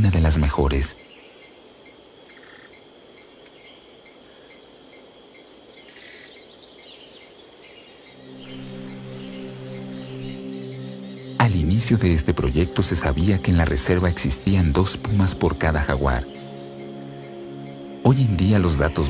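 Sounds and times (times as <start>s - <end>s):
cricket chirping: 0.0s - 19.0s
high insect buzz: 0.6s - 19.0s
low sustained music notes: 7.7s - 19.0s.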